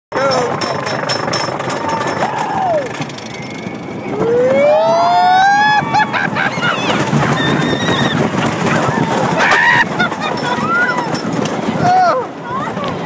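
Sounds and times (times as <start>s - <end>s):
rush of wind and track noise: 0.4s - 13.0s
riders screaming: 1.7s - 11.2s.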